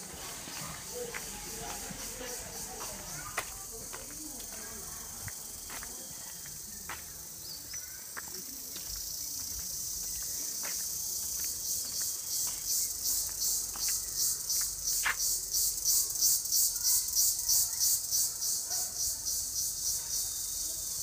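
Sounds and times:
insects droning shrilly: 7.4 - 21.0.

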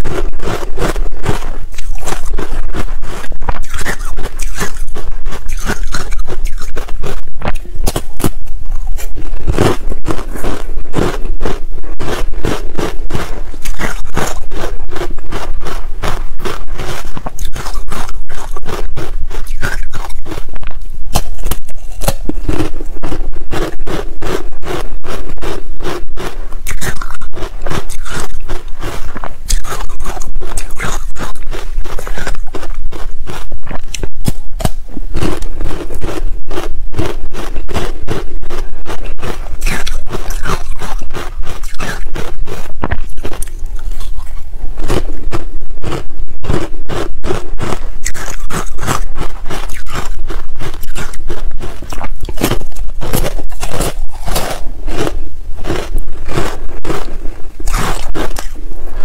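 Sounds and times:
chopsticks scraping ice: 0.0 - 8.4, 26.7 - 36.2, 37.0 - 45.1, 47.6 - 58.6
ice crunching being chewed: 0.0 - 59.0.

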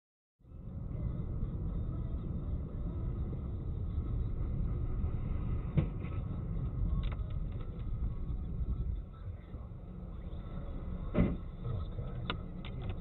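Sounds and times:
road and engine rumble: 0.4 - 13.0
sharp thump: 11.1 - 11.4.

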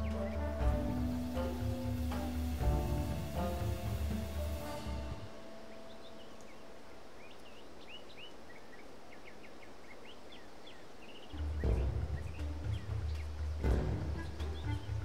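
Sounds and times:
bird chirps: 0.0 - 1.6, 4.7 - 15.0
background music: 0.0 - 7.3, 11.3 - 15.0
steady outdoor hiss: 0.0 - 15.0.

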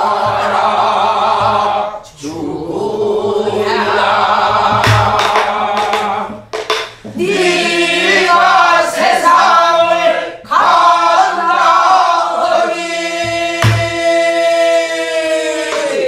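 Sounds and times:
stick strokes on barrel drum: 4.7 - 7.2.

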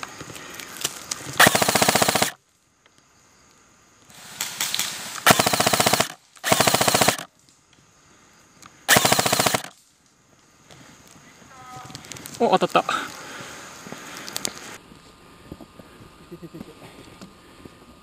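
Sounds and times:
airsoft rifle bursts: 1.4 - 2.4, 4.4 - 7.3, 8.9 - 9.8.

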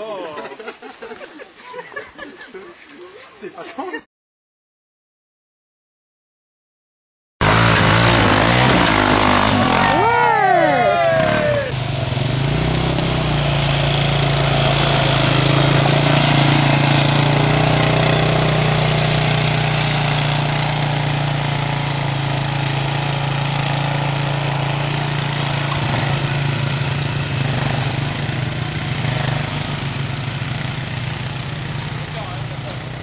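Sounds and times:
off-road buggy engine running: 7.4 - 33.0.

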